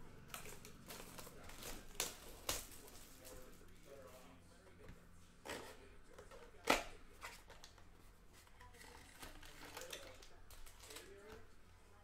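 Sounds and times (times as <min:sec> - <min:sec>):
cardboard rustling: 0:00.3 - 0:04.1.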